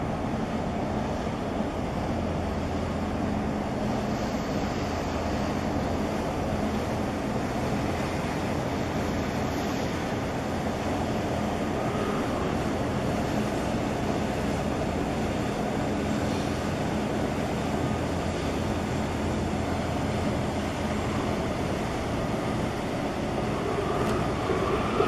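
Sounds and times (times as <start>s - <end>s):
ship machinery rumbling: 4.8s - 25.0s
rushing noise: 11.0s - 14.7s, 20.5s - 25.0s.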